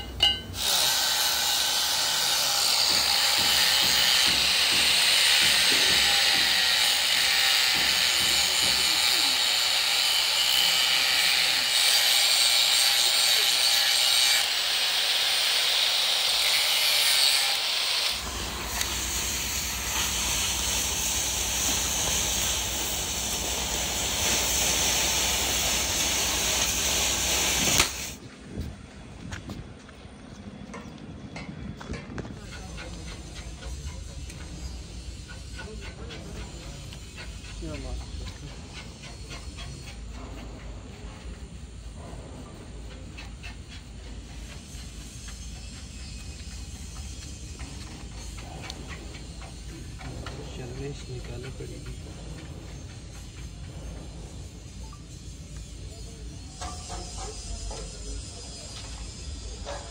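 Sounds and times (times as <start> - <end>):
angle grinder grinding metal: 0.0 - 28.2.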